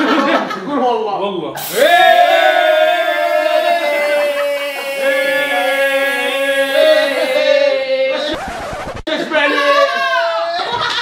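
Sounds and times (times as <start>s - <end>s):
aerosol spray hissing: 1.6s - 7.6s
person singing long note: 1.6s - 8.1s.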